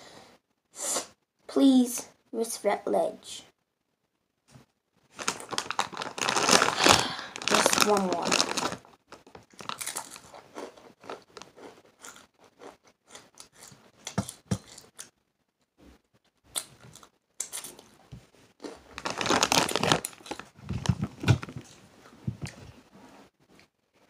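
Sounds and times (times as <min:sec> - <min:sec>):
foil chip bag crinkling: 0:05.1 - 0:12.7, 0:18.6 - 0:21.8.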